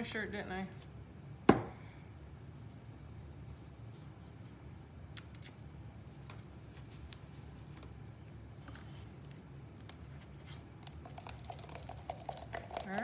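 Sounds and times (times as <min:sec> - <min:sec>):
low steady hum: 0:00.0 - 0:13.0.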